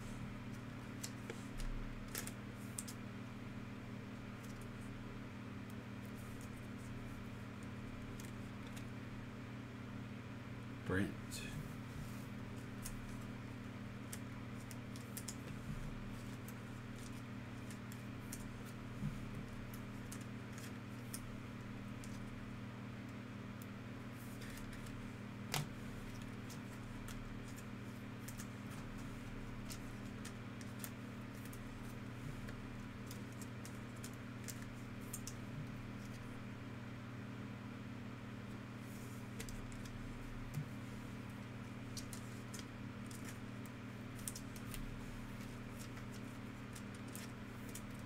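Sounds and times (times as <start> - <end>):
steady low hum: 0.0 - 48.0
cards and plastic holders handled: 41.9 - 48.0.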